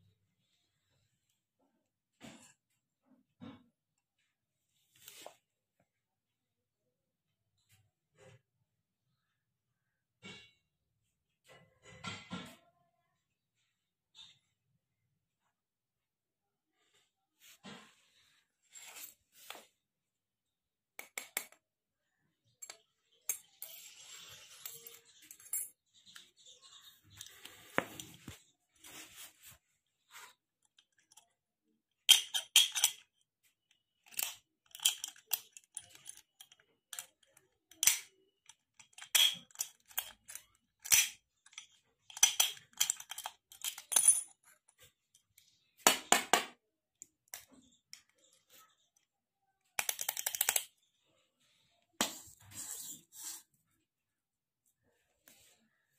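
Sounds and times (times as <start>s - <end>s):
padlock clicking and clinking: 32.1s - 33.0s, 34.0s - 44.3s.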